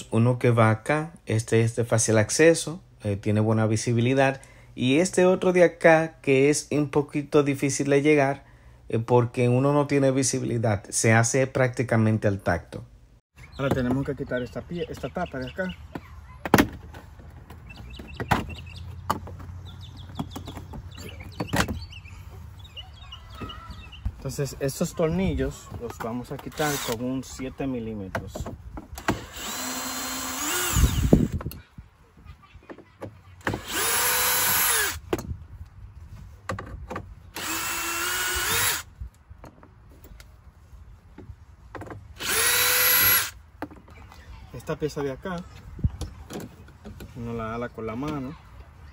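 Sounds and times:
birds chirping faintly: 0:13.3 - 0:28.1
cordless drill motor whine: 0:26.5 - 0:27.0, 0:29.0 - 0:31.4, 0:33.6 - 0:35.0, 0:37.4 - 0:38.9, 0:42.2 - 0:43.4.

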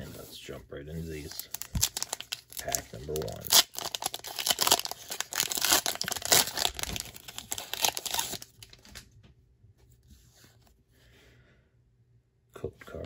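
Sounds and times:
foil wrapper crinkling and tearing: 0:01.3 - 0:09.0.

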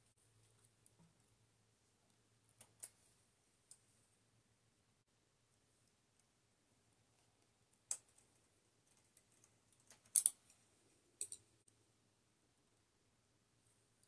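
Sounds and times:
small sharp metal clicks: 0:08.9 - 0:10.6, 0:11.2 - 0:11.5.

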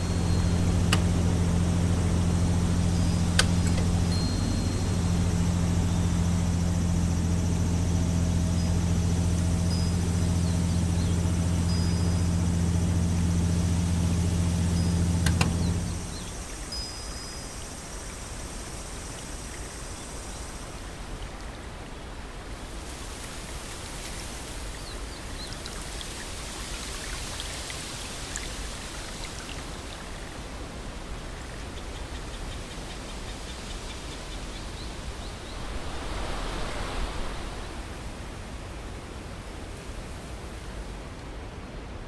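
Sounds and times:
low hum with high whining tones: 0:00.0 - 0:42.0
steady hiss with crackles: 0:00.0 - 0:42.0
click: 0:00.2 - 0:01.4, 0:02.8 - 0:04.6, 0:14.9 - 0:16.0.

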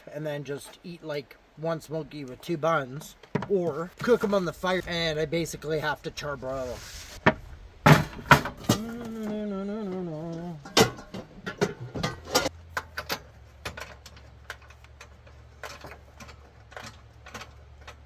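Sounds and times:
person humming: 0:08.6 - 0:10.8
cooking gear clicks and knocks: 0:10.4 - 0:18.0.

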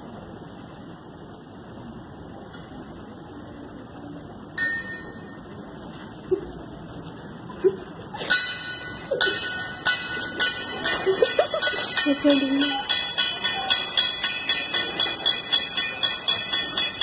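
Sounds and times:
steady background noise: 0:00.0 - 0:17.0
bell ringing strikes: 0:04.6 - 0:05.6, 0:08.2 - 0:17.0.

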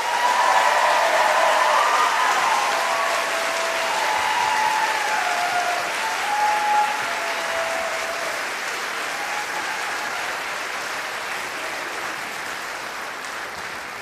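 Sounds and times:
people cheering: 0:00.0 - 0:12.6
audience applauding: 0:00.0 - 0:14.0.

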